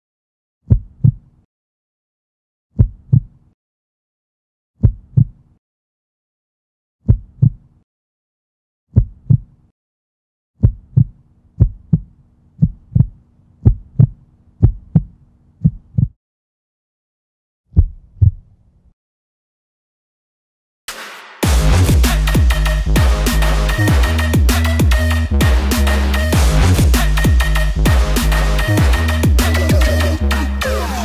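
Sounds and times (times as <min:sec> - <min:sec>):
heartbeat thumps: 0:02.8 - 0:03.3, 0:04.8 - 0:05.3, 0:08.9 - 0:09.5, 0:10.6 - 0:16.2, 0:17.8 - 0:18.4.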